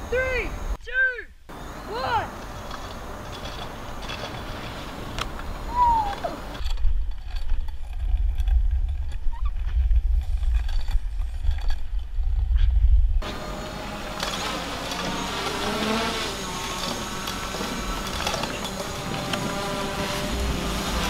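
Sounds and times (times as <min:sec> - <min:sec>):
scooter rolling on asphalt: 0:02.3 - 0:11.8, 0:13.2 - 0:21.0
wind rumbling on microphone: 0:02.6 - 0:13.4, 0:17.0 - 0:21.0.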